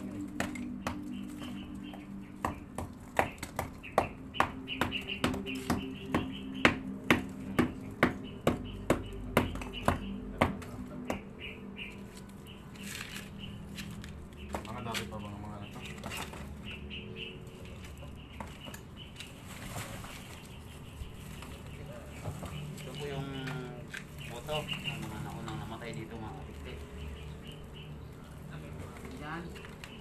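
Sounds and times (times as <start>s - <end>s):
hammer striking concrete: 2.4s - 11.2s.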